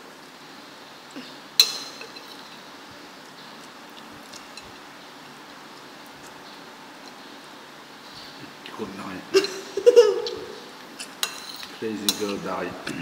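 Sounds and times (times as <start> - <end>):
background hiss: 0.0 - 13.0
fork clinking on ceramic plate: 11.0 - 12.5.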